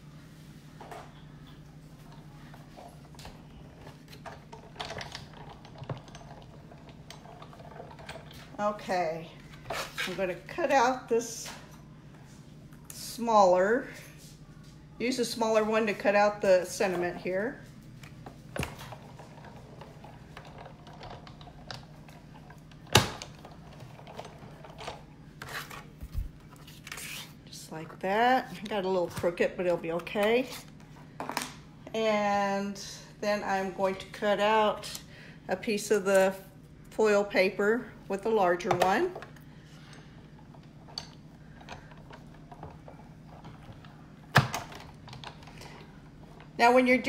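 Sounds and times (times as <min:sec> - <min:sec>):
low steady hum: 0:00.0 - 0:47.0.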